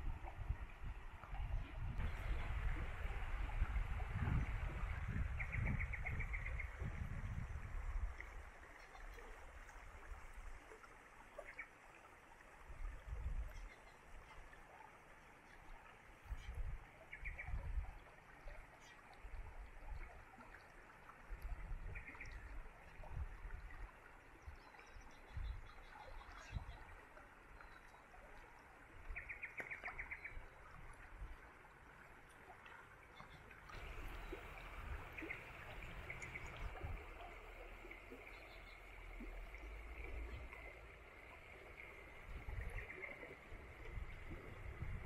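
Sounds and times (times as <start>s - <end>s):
wind rumbling on microphone: 0.0s - 10.7s, 12.7s - 14.4s, 16.2s - 18.6s, 21.2s - 27.0s, 33.7s - 45.0s
stream rushing over rocks: 33.6s - 45.0s.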